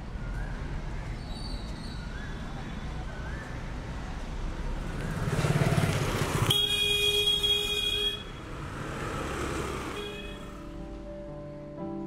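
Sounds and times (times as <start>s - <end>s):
street traffic: 0.0s - 11.4s
motorcycle passing close by: 4.7s - 7.5s, 8.3s - 10.6s
vehicle horn: 6.4s - 8.8s, 9.7s - 10.6s.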